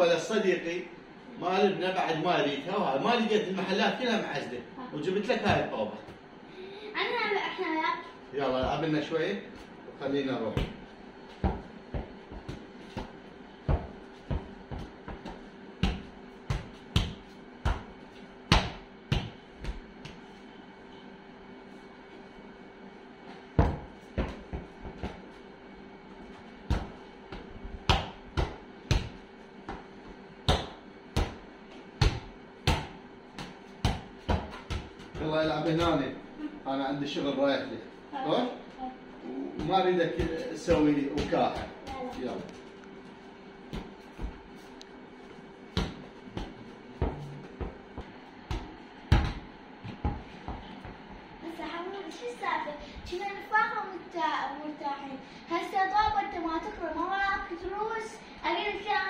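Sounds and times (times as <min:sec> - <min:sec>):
ball bouncing thuds: 0:10.5 - 0:20.2, 0:23.5 - 0:25.4, 0:26.6 - 0:36.1, 0:39.6 - 0:42.5, 0:43.7 - 0:44.7, 0:45.7 - 0:51.1.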